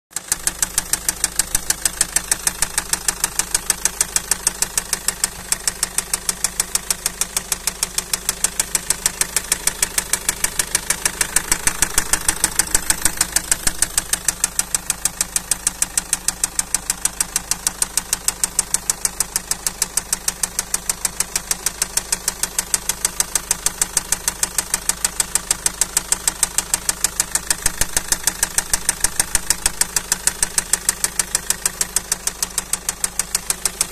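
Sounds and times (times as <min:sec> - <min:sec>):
diesel engine idling: 0:00.1 - 0:33.9
sharp metallic engine knock: 0:00.1 - 0:33.9.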